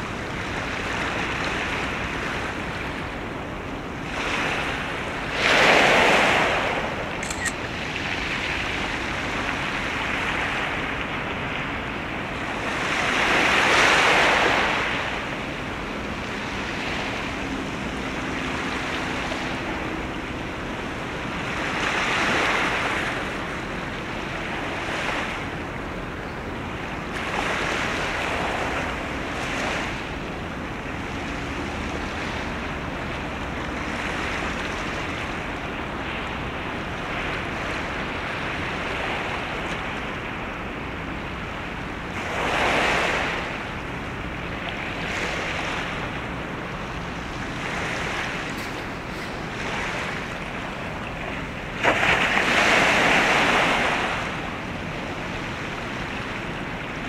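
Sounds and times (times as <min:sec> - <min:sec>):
waves washing in: 0:00.0 - 0:57.0
wind: 0:00.0 - 0:57.0.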